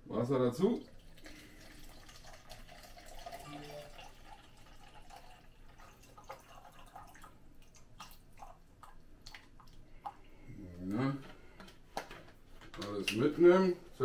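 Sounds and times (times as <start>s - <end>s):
water dripping: 0.6s - 10.3s
water trickling into cup: 0.6s - 10.4s.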